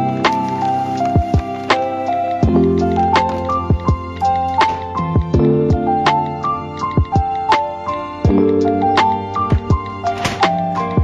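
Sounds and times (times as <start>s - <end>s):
gentle melody with soft beat: 0.0s - 11.0s.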